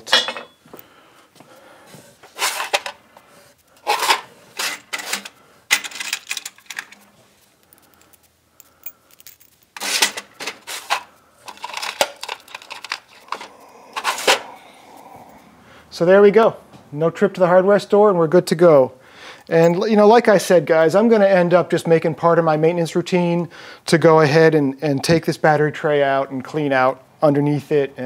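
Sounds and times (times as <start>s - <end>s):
bolts and washers clinking: 0.0s - 0.8s, 3.8s - 14.4s, 19.5s - 19.9s.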